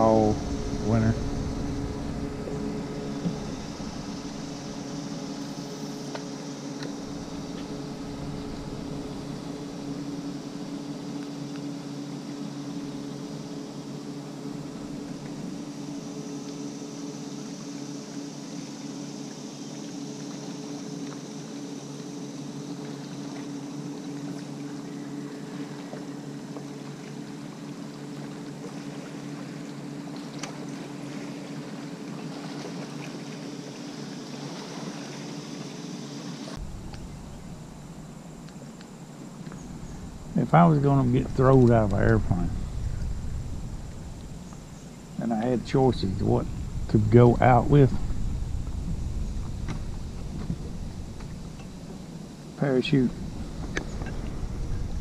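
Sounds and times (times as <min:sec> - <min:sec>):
small boat motor humming: 0:00.0 - 0:55.0
faint ticks: 0:38.4 - 0:40.0.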